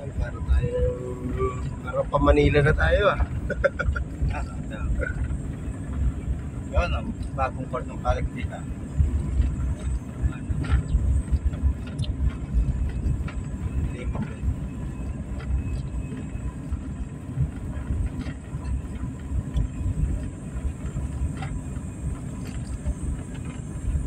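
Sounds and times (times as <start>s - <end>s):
tyres rumbling on gravel: 0.0s - 24.0s
small clicks and rattles: 9.2s - 24.0s.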